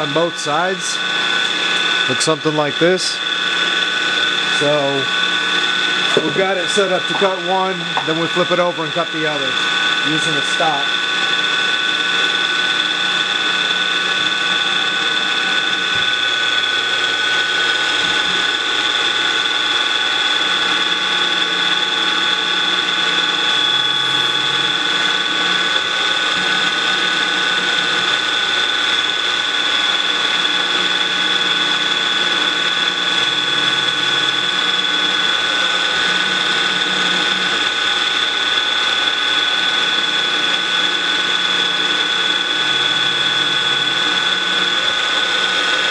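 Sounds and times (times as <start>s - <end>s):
low hums: 0.0s - 18.8s
end mill cutting plastic: 0.0s - 45.9s
milling machine spindle whine: 0.0s - 45.9s.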